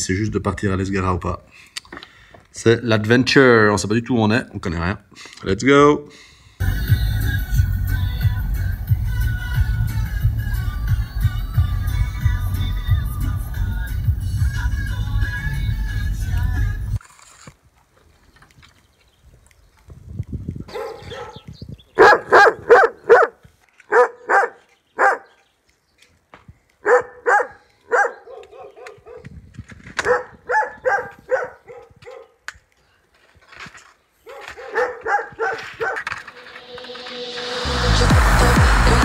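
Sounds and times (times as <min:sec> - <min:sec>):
music: 0:06.6 - 0:17.0, 0:36.3 - 0:39.0
dog barking: 0:20.7 - 0:21.4, 0:22.0 - 0:25.4, 0:26.8 - 0:29.3, 0:30.0 - 0:32.4, 0:34.2 - 0:36.1.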